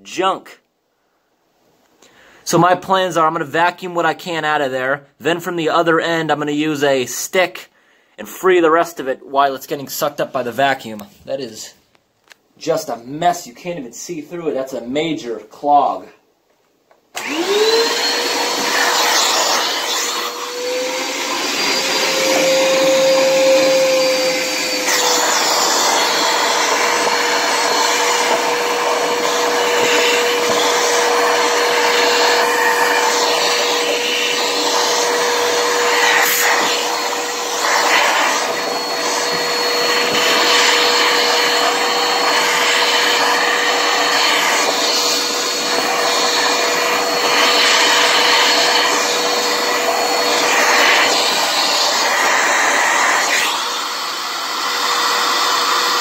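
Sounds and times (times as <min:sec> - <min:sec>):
vacuum cleaner whining: 0:17.1 - 0:56.0.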